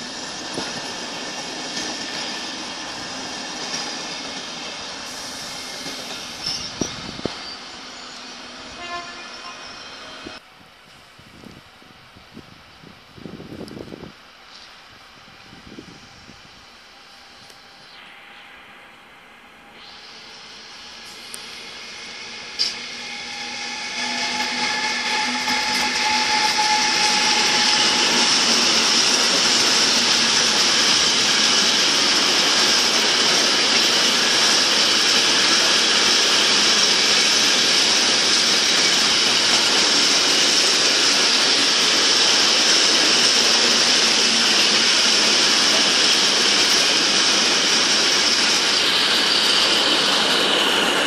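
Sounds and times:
freight train wheels on rails: 0:00.0 - 0:18.2, 0:19.7 - 0:51.0
high-pitched wheel ring: 0:17.8 - 0:31.8.

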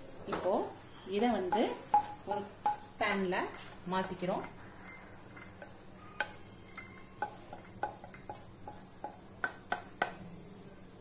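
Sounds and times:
cookware clinking: 0:01.5 - 0:10.1.

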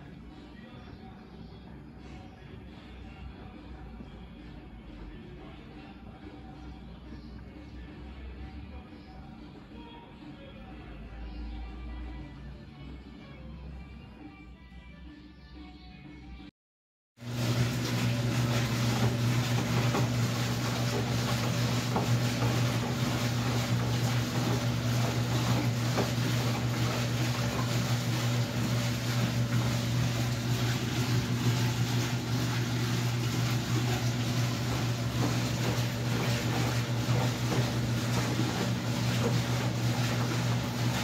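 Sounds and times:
washing machine running: 0:17.2 - 0:41.0.

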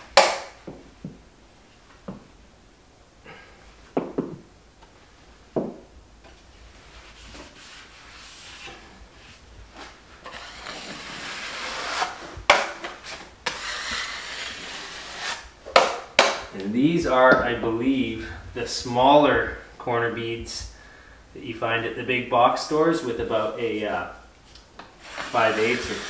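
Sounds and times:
taping knife scraping joint compound: 0:09.8 - 0:16.4, 0:24.5 - 0:26.0.

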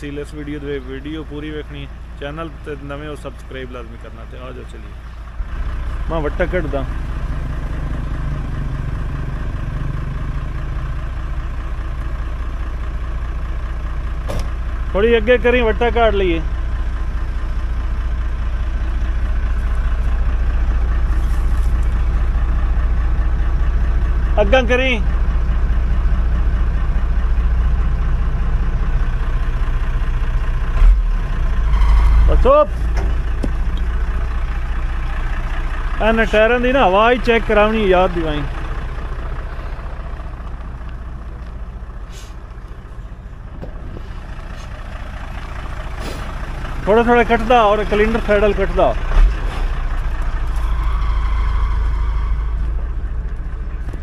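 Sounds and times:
diesel truck engine idling: 0:00.0 - 0:54.0.

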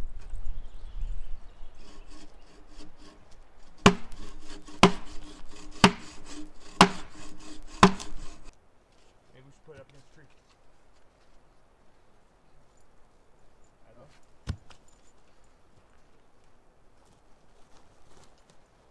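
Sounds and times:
hand saw cutting wood: 0:01.8 - 0:08.5
sharp knocks: 0:03.8 - 0:08.5.

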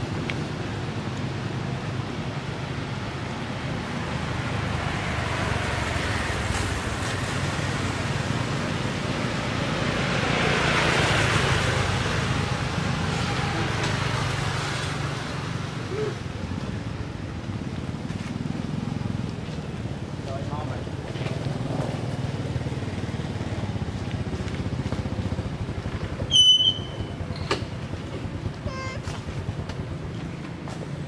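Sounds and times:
vehicle passing by: 0:03.9 - 0:26.3.

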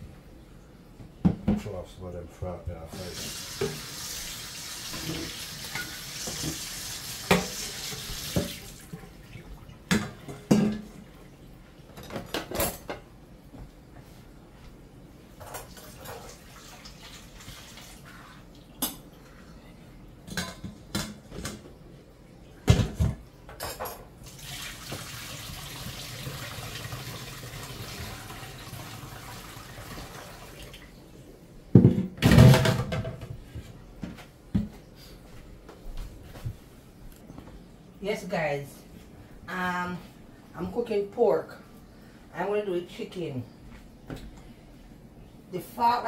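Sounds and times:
water running from tap: 0:02.9 - 0:09.5, 0:15.7 - 0:18.6, 0:24.2 - 0:30.9
dishes and cutlery clattering: 0:09.9 - 0:11.0, 0:12.0 - 0:13.1, 0:20.3 - 0:21.6.

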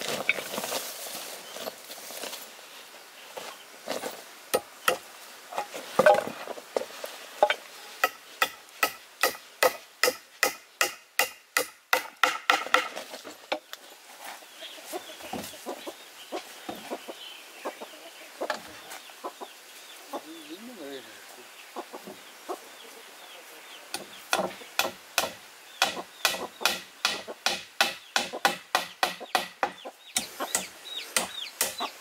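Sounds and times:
chickens clucking: 0:13.4 - 0:24.9, 0:25.8 - 0:32.0
chicks peeping: 0:14.3 - 0:24.8, 0:28.0 - 0:32.0.

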